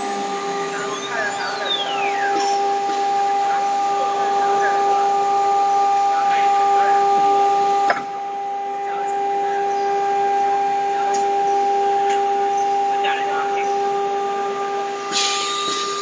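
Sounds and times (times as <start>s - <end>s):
machine whine: 0.0s - 16.0s
hiss: 15.1s - 16.0s.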